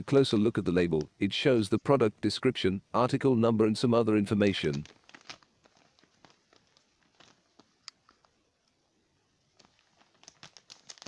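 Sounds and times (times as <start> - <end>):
plastic bag crinkling: 4.5 - 8.4, 9.5 - 11.0.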